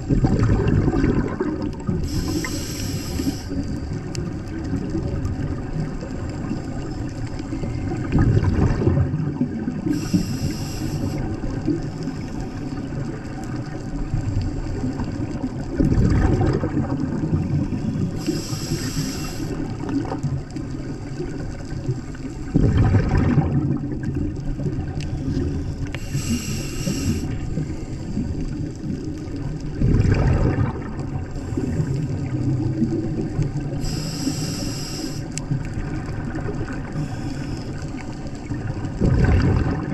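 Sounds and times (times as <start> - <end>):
exhaled bubbles rushing: 0.0 - 34.4, 35.3 - 39.9
underwater wash: 0.0 - 39.9
regulator inhalation hiss: 2.0 - 3.8, 9.8 - 11.4, 17.8 - 19.8, 25.3 - 28.2, 33.8 - 35.4, 37.0 - 37.8.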